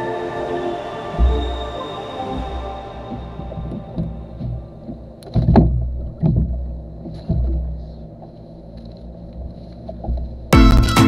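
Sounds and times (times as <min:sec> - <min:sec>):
low rumbling noise: 0:00.0 - 0:11.0
dull knocks and thumps: 0:02.3 - 0:08.3, 0:09.4 - 0:10.5.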